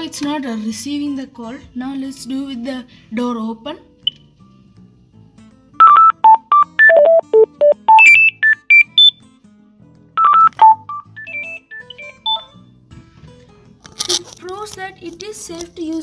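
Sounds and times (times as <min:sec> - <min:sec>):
phone melody ringtone: 0:05.8 - 0:09.2, 0:10.2 - 0:12.6.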